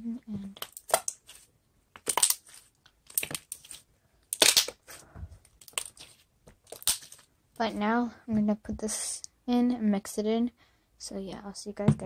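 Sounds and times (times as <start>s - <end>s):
slime squishing with crackles: 0.0s - 9.2s.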